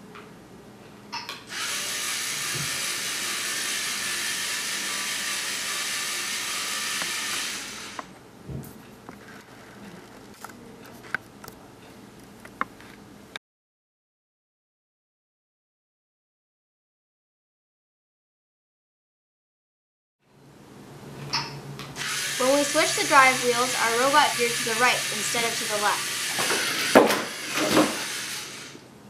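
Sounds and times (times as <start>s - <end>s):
robot motors whirring: 1.5s - 8.1s, 22.0s - 28.8s.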